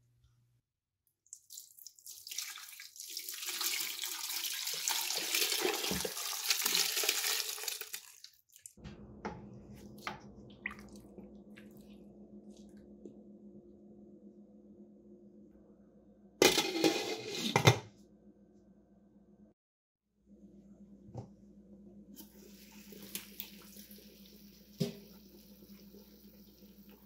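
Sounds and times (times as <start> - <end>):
liquid splashing into a pot: 1.3 - 8.8
low steady hum: 8.8 - 19.6, 20.3 - 27.0.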